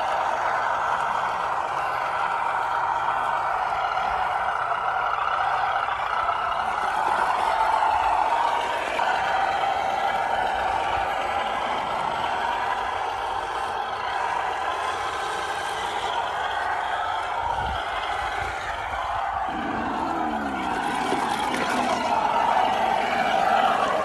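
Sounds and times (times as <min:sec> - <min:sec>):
toy car motor and gears whining: 0:04.0 - 0:24.0.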